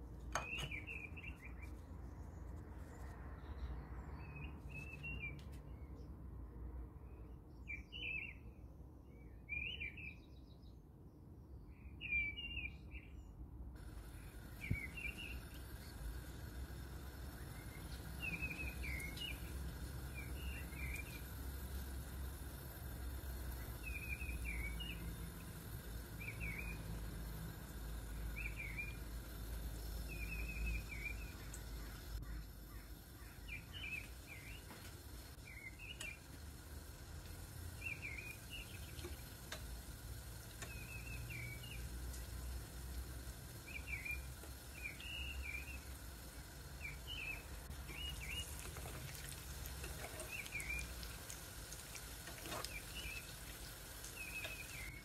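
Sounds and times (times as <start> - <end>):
bird chirps: 0.3 - 6.0, 14.2 - 16.2, 17.2 - 21.4, 23.6 - 27.0, 28.0 - 34.8, 37.8 - 39.2, 43.6 - 45.9, 46.8 - 48.7, 52.6 - 55.0
low steady hum: 13.0 - 55.0
food deep-frying in oil: 13.8 - 55.0.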